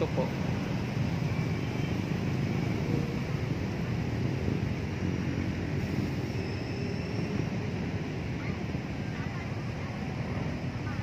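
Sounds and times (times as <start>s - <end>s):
city background rumble and hiss: 0.0s - 11.0s.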